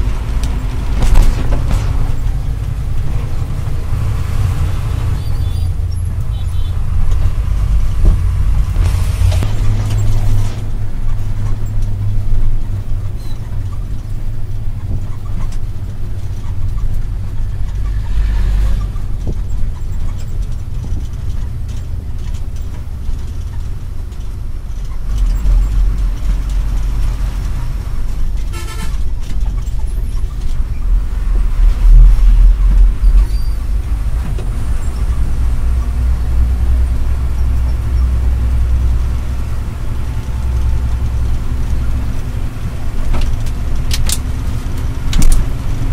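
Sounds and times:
truck diesel engine droning: 0:00.0 - 0:45.9
short horn toot: 0:28.5 - 0:29.0.

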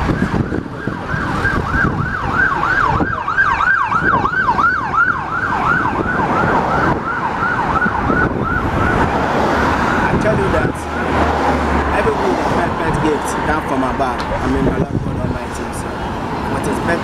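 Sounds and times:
electronic siren yelping: 0:00.0 - 0:11.6
road traffic rumble: 0:00.0 - 0:17.0.

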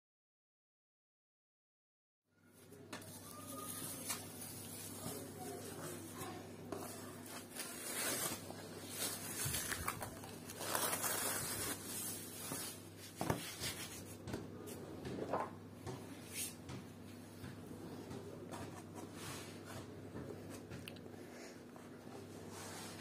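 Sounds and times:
dough rubbing and scraping: 0:03.2 - 0:15.5, 0:17.9 - 0:20.7, 0:21.4 - 0:23.0.

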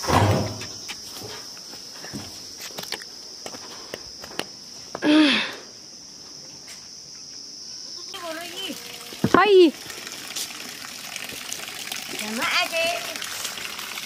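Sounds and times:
insects chirring: 0:00.0 - 0:14.0
footsteps on stony path: 0:00.6 - 0:05.0.

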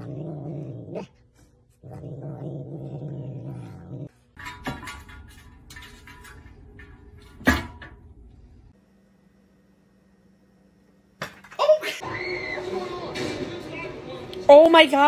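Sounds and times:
cat growling low: 0:00.0 - 0:04.1.

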